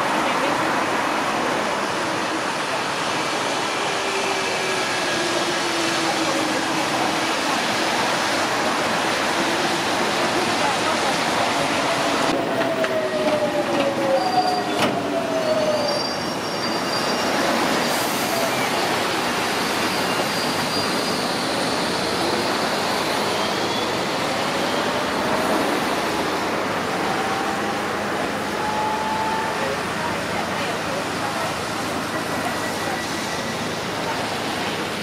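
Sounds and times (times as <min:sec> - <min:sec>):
train wheels rumbling on rails: 0:00.0 - 0:35.0.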